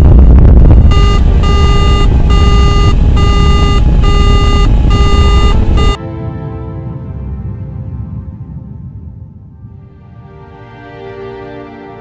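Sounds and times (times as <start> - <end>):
rocket engine rumbling: 0.0 - 6.0
electronic warning alarm beeping: 0.9 - 6.0.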